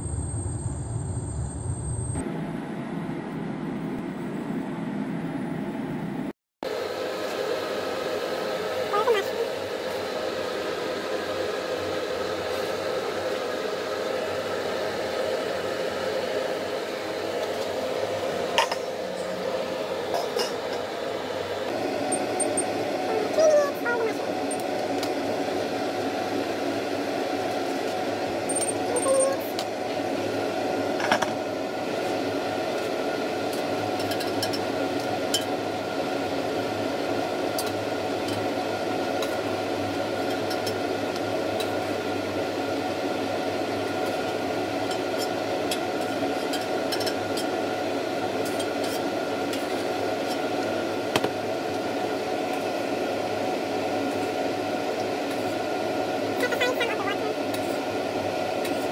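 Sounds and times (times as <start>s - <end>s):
range hood fan whirring: 0.0s - 58.9s.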